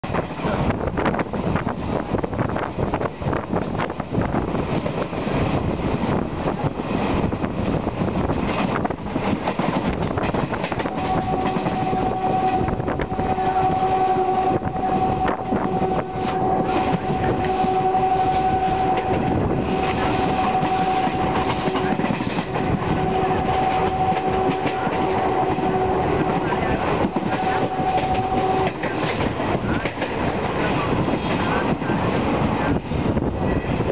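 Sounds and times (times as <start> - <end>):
train wheels clattering: 7.1 - 13.2, 15.7 - 31.6
train horn: 10.6 - 30.0.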